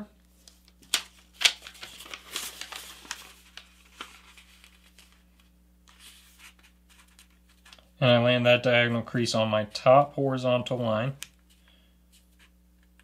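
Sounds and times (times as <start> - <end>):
paper rustling: 0.4 - 7.9.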